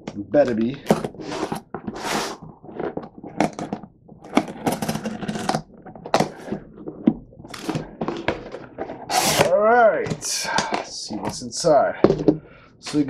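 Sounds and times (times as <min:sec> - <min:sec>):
box flaps pulled open: 0:00.8 - 0:03.7, 0:07.5 - 0:09.5
cardboard scraping and knocking: 0:00.8 - 0:12.4
knife slicing packing tape: 0:09.1 - 0:09.5.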